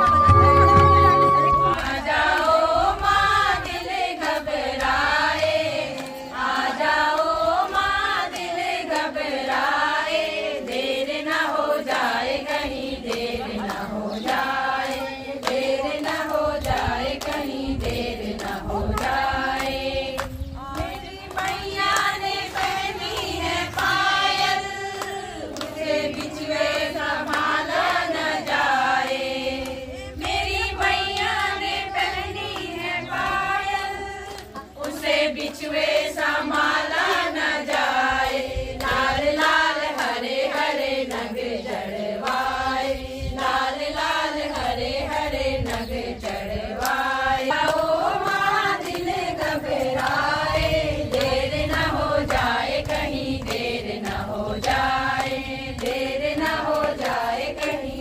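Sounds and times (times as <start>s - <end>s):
steady beat: 0.0s - 2.4s
group singing devotional song: 0.0s - 58.0s.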